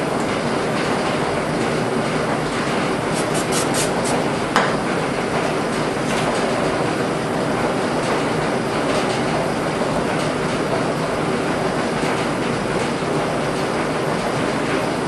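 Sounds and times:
towel rubbing gasket: 3.1 - 4.2.

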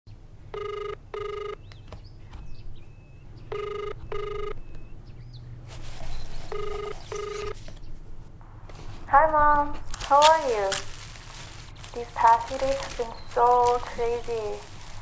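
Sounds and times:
telephone ringing: 0.5 - 1.7, 3.5 - 4.7, 6.5 - 7.7
rustling hiss: 9.8 - 15.0.

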